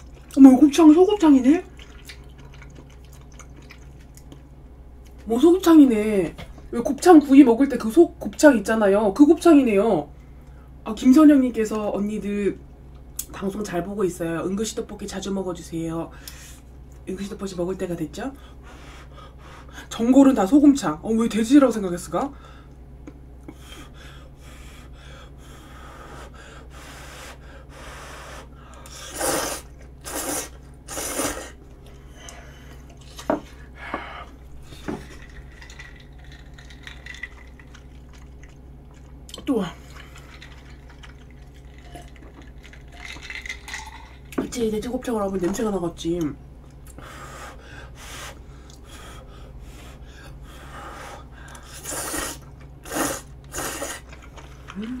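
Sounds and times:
noodles being slurped: 29.0 - 31.6, 51.7 - 55.0.

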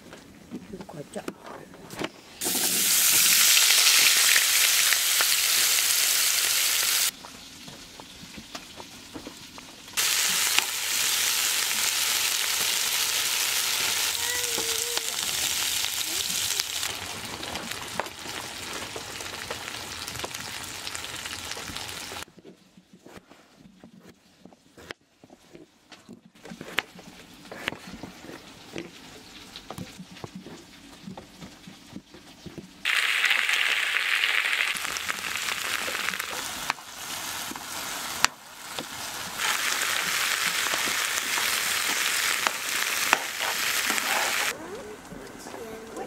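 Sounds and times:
potatoes sizzling in a pan: 2.4 - 22.3, 32.8 - 44.6.

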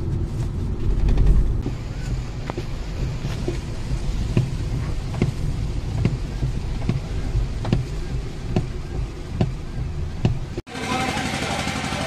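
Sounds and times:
windscreen wipers knocking: 0.0 - 10.6
road and engine rumble: 0.0 - 12.0
rain hissing: 1.6 - 10.6.

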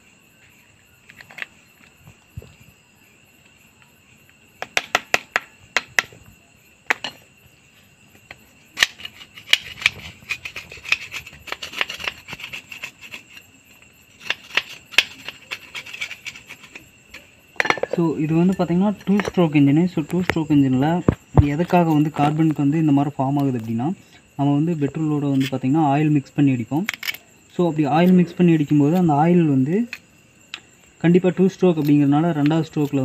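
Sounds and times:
metal tool scraping and tapping metal: 6.9 - 7.2, 14.2 - 19.4.

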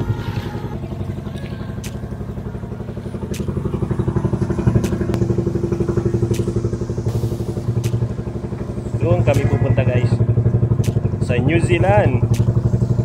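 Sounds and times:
boat engine pulsing: 0.0 - 13.0
sharp clicks: 3.3 - 3.6, 6.2 - 6.6, 7.8 - 8.1, 10.8 - 11.1, 12.3 - 12.6.

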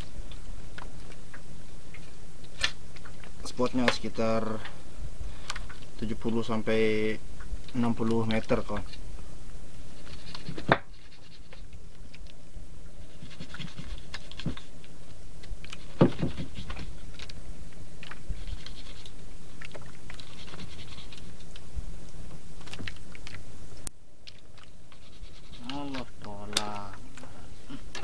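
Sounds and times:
low steady hum: 0.0 - 28.0
fishing line rubbing over wood: 9.8 - 11.8, 13.0 - 14.8, 15.6 - 17.3, 18.0 - 21.5, 24.6 - 26.2.

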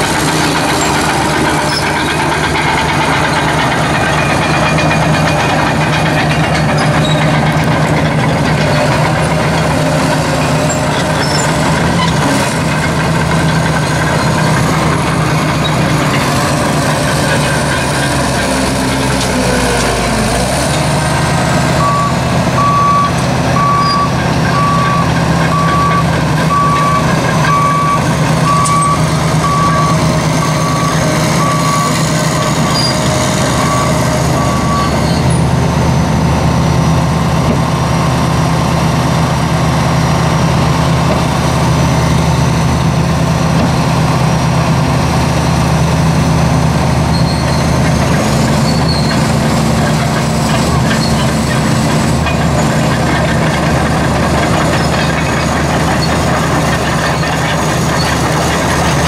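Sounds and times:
diesel engine running: 0.0 - 59.0
back-up alarm beeping: 21.8 - 32.0.

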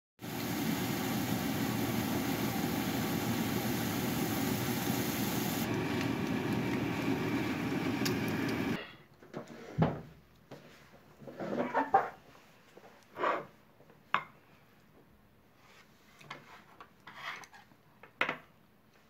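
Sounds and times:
food frying in a pan: 0.2 - 8.8.

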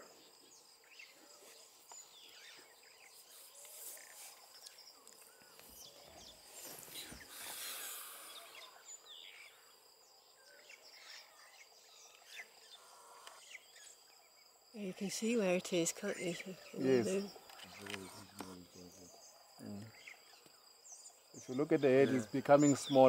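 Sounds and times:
high insect trill: 0.0 - 23.0.

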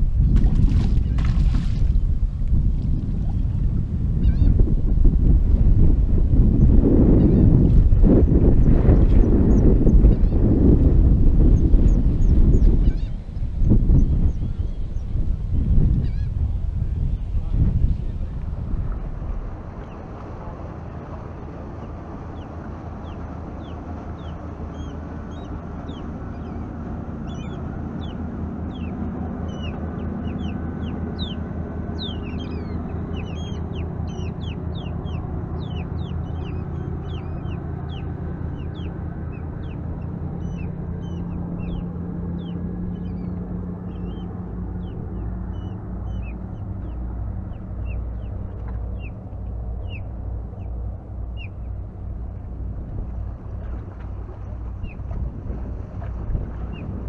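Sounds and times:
motorboat engine rumble: 0.0 - 57.0
wind on microphone: 0.0 - 57.0
bird chirps: 27.3 - 31.4, 32.0 - 39.8.

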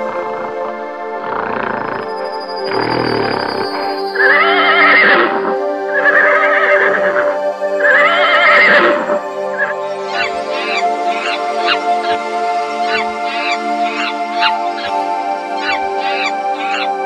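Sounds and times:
background music: 0.0 - 17.0
horse whinnying: 3.0 - 7.2, 7.8 - 9.0, 9.6 - 17.0.

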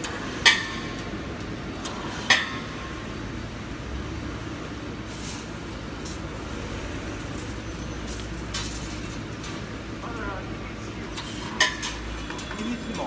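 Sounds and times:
steel wire clanking on metal: 0.0 - 2.9, 5.1 - 10.2, 11.0 - 13.0.

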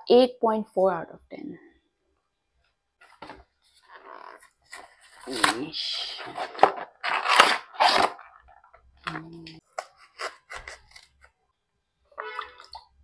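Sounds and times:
cardboard box tearing: 4.7 - 8.4.

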